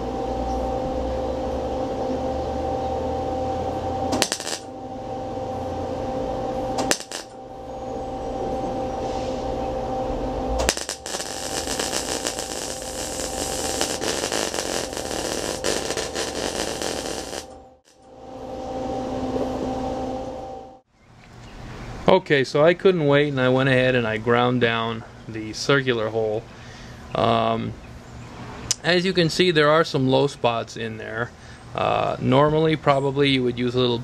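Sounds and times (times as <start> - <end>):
steady hum: 0.0 - 20.9
welding arc crackling: 4.1 - 4.7, 6.8 - 7.4, 10.6 - 18.0.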